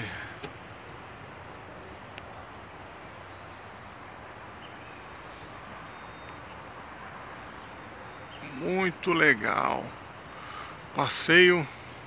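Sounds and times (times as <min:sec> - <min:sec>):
faint high bird chirps: 0:00.0 - 0:11.4.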